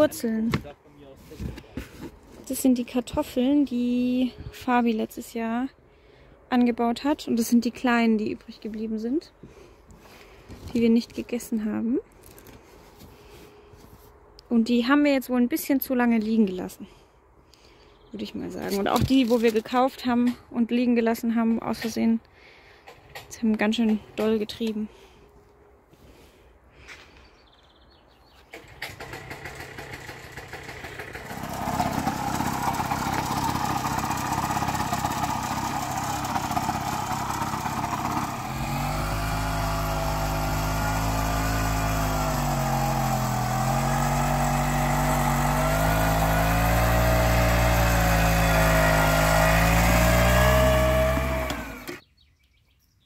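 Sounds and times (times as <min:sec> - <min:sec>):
walk-behind tractor engine running: 0:28.5 - 0:52.0.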